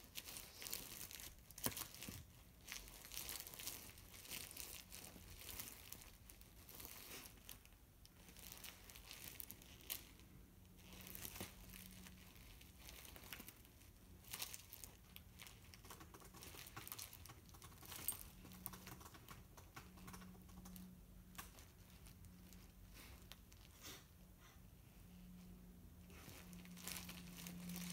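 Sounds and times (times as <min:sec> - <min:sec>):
puppy chewing fabric toy: 0:00.0 - 0:23.8, 0:26.0 - 0:27.9.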